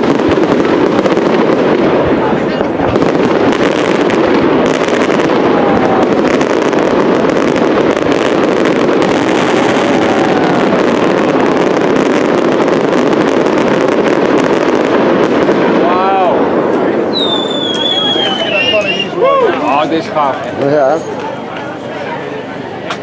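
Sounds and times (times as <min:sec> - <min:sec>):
fireworks bursting and crackling: 0:00.0 - 0:23.0
firework whistle: 0:07.4 - 0:12.6, 0:17.0 - 0:19.6.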